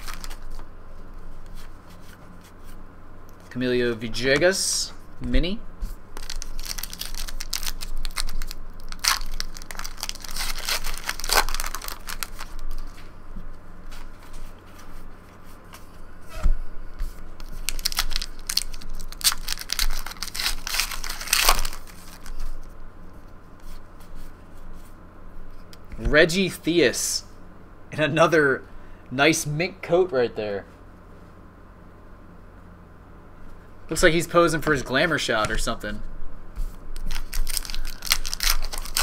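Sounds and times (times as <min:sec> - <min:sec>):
plastic wrappers crinkling: 0:00.0 - 0:00.6, 0:06.2 - 0:13.0, 0:17.4 - 0:22.7, 0:37.0 - 0:39.0
cards shuffling: 0:00.0 - 0:00.7, 0:06.2 - 0:13.1, 0:17.0 - 0:22.7, 0:36.6 - 0:39.0.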